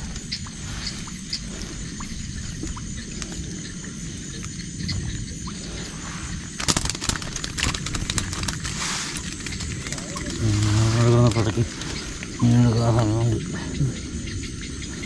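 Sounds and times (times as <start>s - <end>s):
sharp knocks and crackles: 6.5s - 12.4s.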